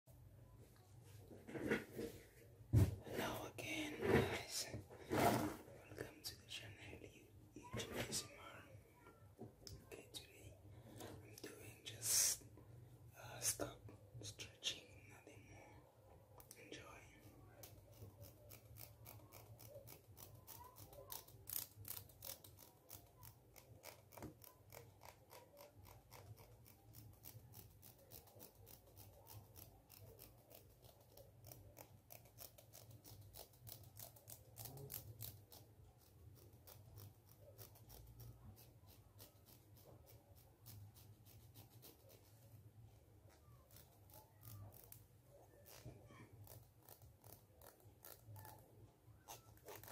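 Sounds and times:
comb teeth scratching: 17.2 - 42.6, 43.4 - 49.9.

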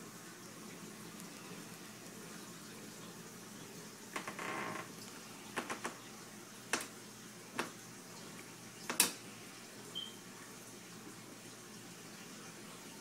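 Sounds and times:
aquarium water hissing: 0.0 - 13.0.

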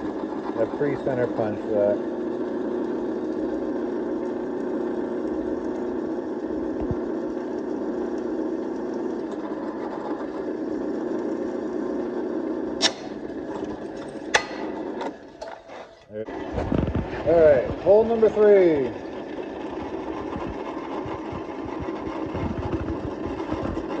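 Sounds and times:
drill press drilling metal: 0.0 - 12.0, 12.7 - 24.0
sharp metallic click: 12.8 - 13.2.

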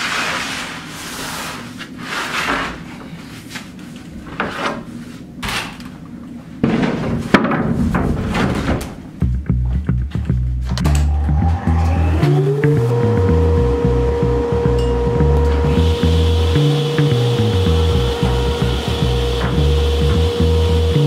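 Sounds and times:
plywood sheet scraping against boards: 0.0 - 5.7.

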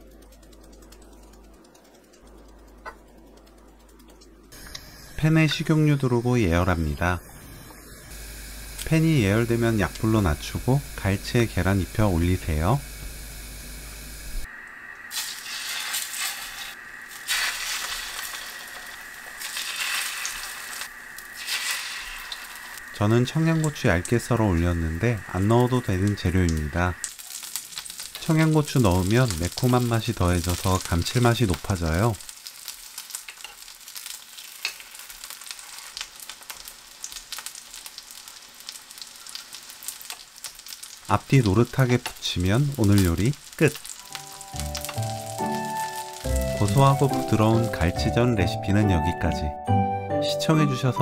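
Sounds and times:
fish fillets sizzling in oil: 15.1 - 47.8.

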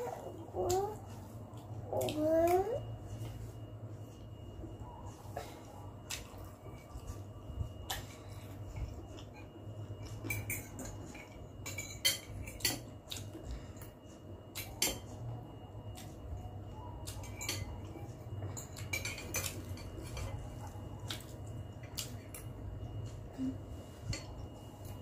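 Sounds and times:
low steady hum: 0.0 - 25.0
cutlery clinking on glass bowl: 9.2 - 12.9, 17.1 - 20.5.

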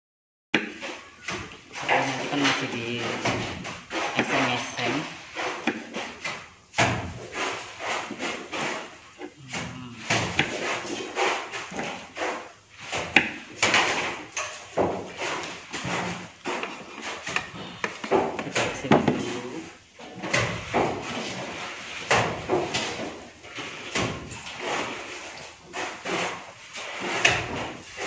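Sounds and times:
knocks and scrapes: 0.6 - 28.0
knife cutting on a board: 2.1 - 19.3.

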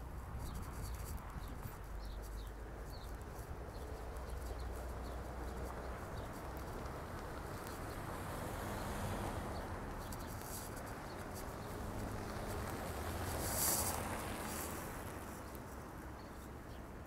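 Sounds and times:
road traffic hum: 0.0 - 17.0.

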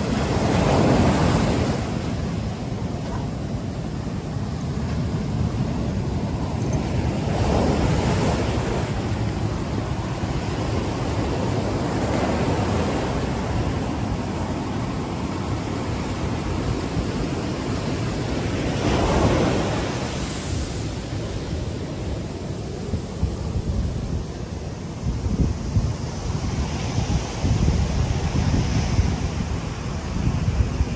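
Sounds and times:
ocean waves breaking on beach: 0.0 - 30.9.

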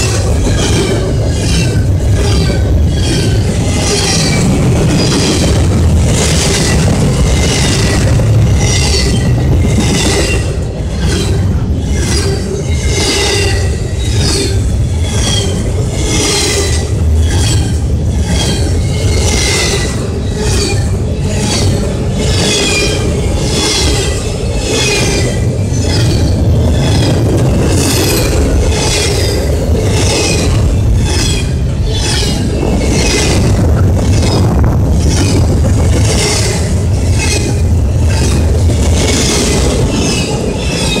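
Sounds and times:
freight train wheels rumbling: 0.0 - 41.0
high-pitched wheel noise: 0.0 - 41.0.

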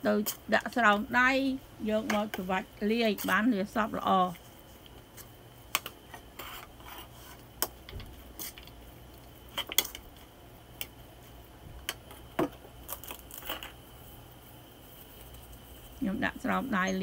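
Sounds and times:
spoon stirring and scraping bowl: 2.0 - 3.8, 4.4 - 8.7.

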